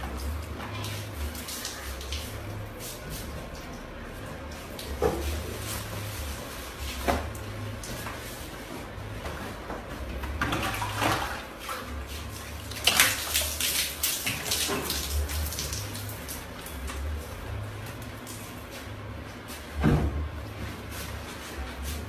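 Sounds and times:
water splashing over person: 12.2s - 16.6s.

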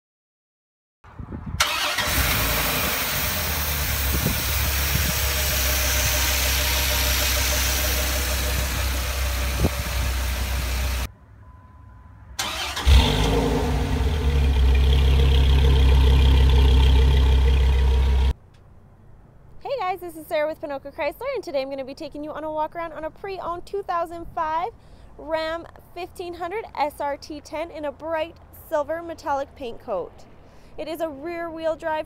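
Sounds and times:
truck engine idling: 1.6s - 11.1s, 12.4s - 18.3s.

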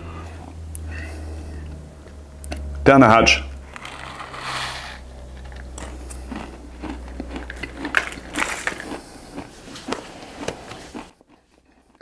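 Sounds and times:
sunflower seeds crunching: 3.7s - 12.0s.

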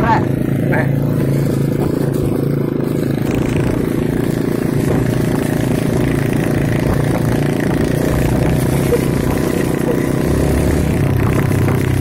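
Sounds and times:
motorcycle engine running: 0.0s - 12.0s
road and wind noise: 0.0s - 12.0s.

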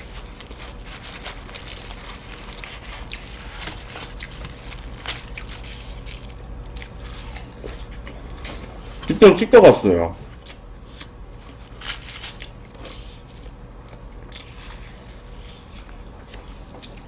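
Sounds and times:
chewing: 0.0s - 8.7s, 10.2s - 17.0s.

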